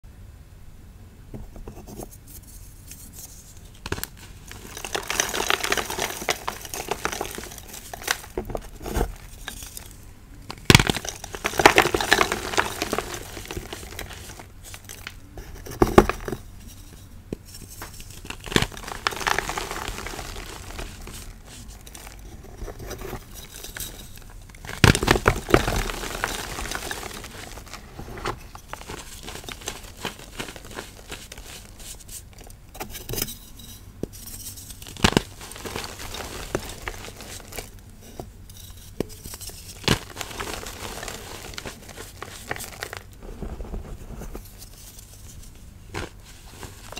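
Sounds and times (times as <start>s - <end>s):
fingers crushing chalk blocks: 3.8s - 16.4s, 17.6s - 33.2s.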